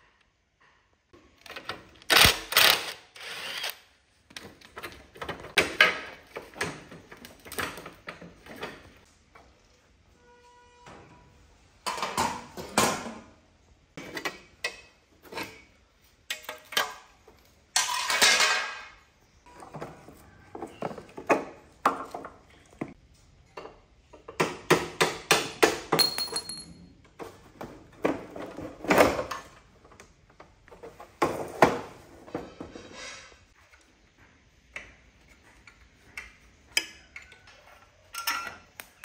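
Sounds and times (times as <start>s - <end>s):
metal set down on tiled floor: 26.0s - 26.8s
metal parts clanking and rattling: 26.0s - 26.9s.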